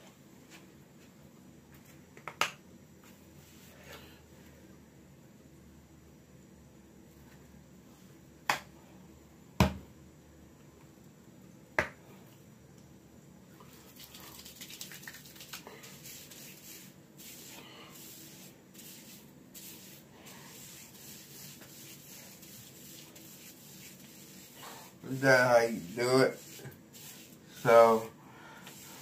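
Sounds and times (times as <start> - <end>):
hands rubbing short hair: 13.8 - 28.0.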